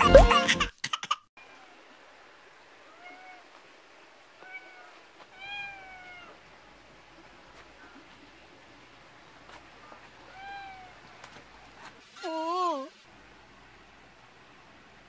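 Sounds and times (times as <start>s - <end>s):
cat meowing: 2.9s - 3.5s, 4.4s - 6.4s, 10.3s - 11.0s.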